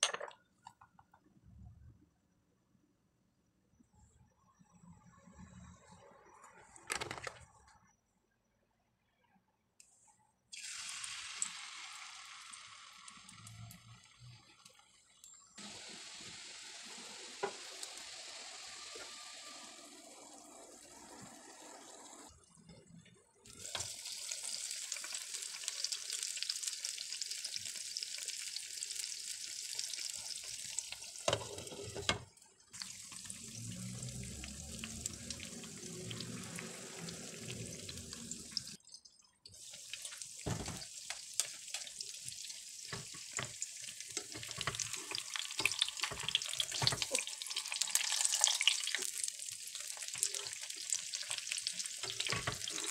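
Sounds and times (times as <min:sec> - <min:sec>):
batter sizzling in oil: 0:10.5 - 0:22.3, 0:23.5 - 0:32.1, 0:32.7 - 0:38.8, 0:39.6 - 0:52.9.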